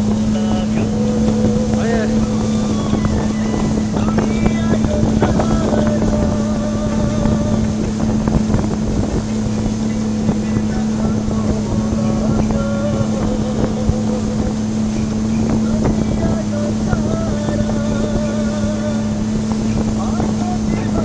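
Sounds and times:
speedboat engine droning: 0.0s - 21.0s
wind rushing: 0.0s - 21.0s.

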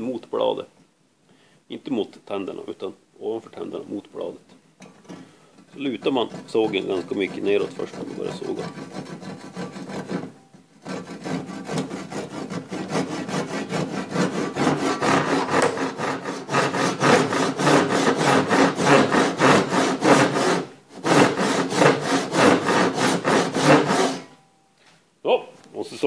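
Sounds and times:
handsaw sawing wood: 5.8s - 24.3s.

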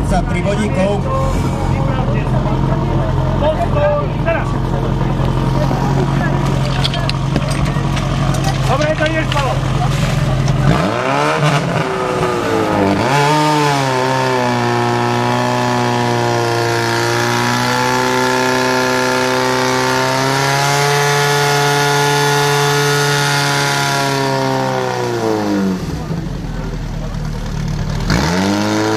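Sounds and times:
pump engine running at high revs: 1.3s - 28.9s.

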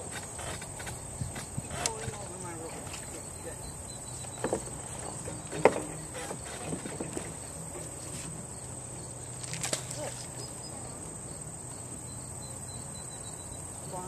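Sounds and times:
high-pitched insect chorus: 0.0s - 14.0s
faint knocks: 4.3s - 8.3s.

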